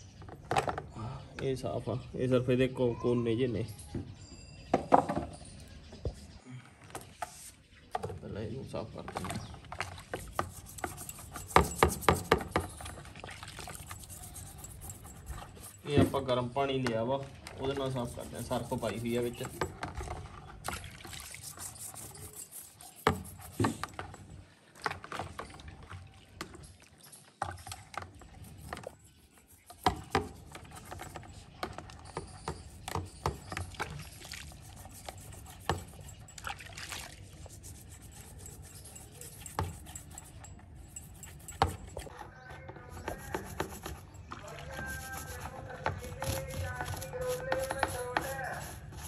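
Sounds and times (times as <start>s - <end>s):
water splashing: 9.1s - 14.9s, 17.2s - 22.0s, 33.4s - 38.3s
toothbrush scrubbing plastic grille: 13.6s - 15.9s, 17.8s - 19.8s, 21.3s - 23.8s, 43.0s - 49.0s.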